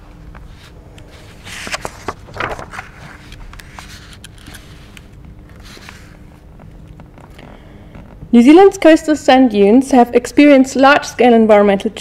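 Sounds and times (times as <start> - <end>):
low room hum: 0.0 - 12.0
small clicks and rustle: 1.6 - 8.2.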